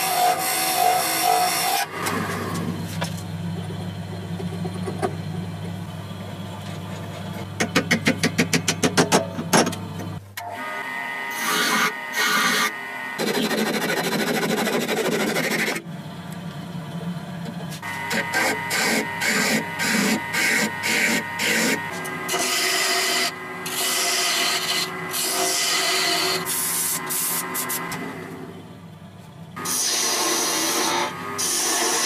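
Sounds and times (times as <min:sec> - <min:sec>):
file scraping metal: 0:00.0 - 0:03.0, 0:11.3 - 0:15.8, 0:17.7 - 0:28.0, 0:29.6 - 0:32.0
wood lathe humming: 0:00.0 - 0:07.4, 0:10.4 - 0:28.9, 0:29.5 - 0:32.0.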